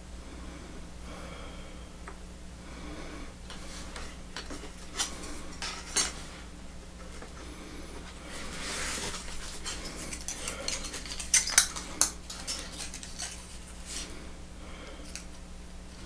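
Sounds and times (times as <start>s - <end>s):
small metal parts clinking: 9.6s - 13.6s.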